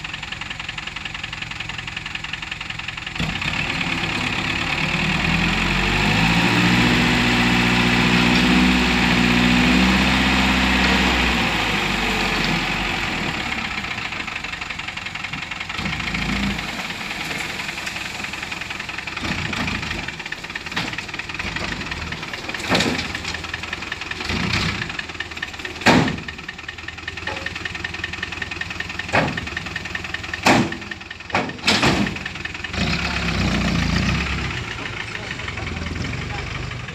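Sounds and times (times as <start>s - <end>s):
diesel truck engine revving: 3.1s - 36.9s
sharp knocks and bangs: 25.8s - 26.4s, 29.1s - 29.6s, 30.4s - 32.3s.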